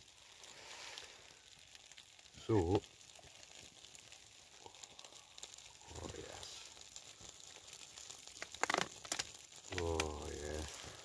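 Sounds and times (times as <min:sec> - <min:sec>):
plastic pot crinkling: 0:07.0 - 0:11.0.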